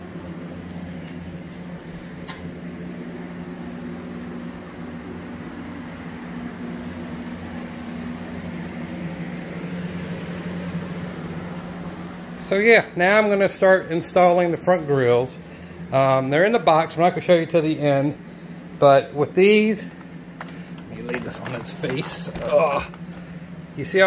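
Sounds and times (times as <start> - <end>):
machine hum: 0.0 - 24.0.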